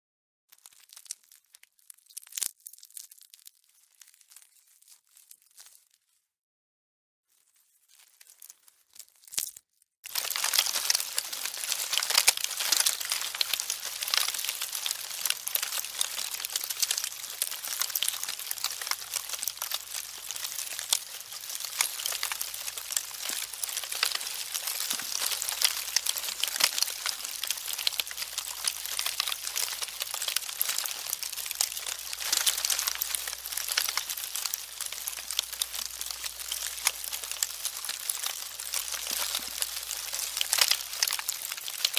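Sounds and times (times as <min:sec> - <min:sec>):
termites clicking in wood: 0:10.1 - 0:41.9.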